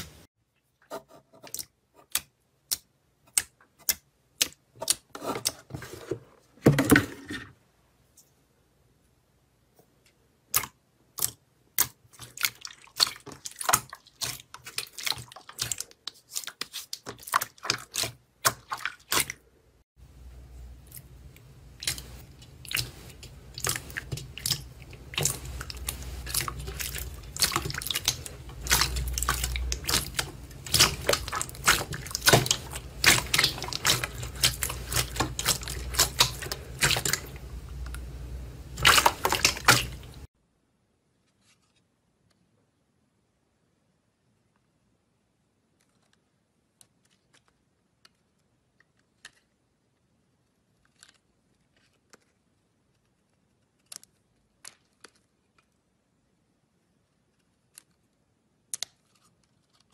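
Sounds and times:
slime squelching in bowl: 10.5 - 19.4, 20.6 - 40.3.

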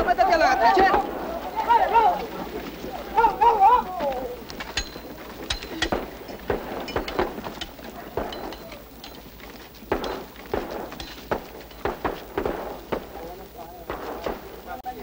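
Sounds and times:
gunfire cracks: 0.0 - 1.4, 4.8 - 8.8, 9.9 - 14.8.

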